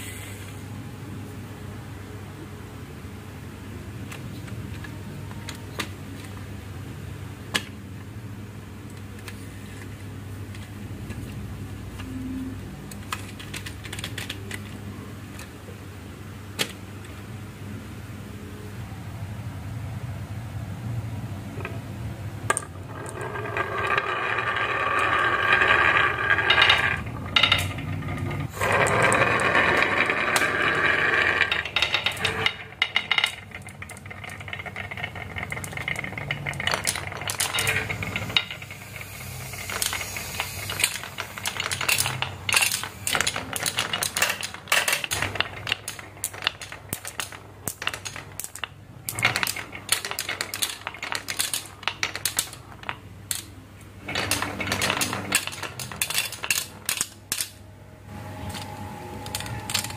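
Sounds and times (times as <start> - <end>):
marbles rolling on wooden run: 22.5 - 57.6, 59.2 - 59.9.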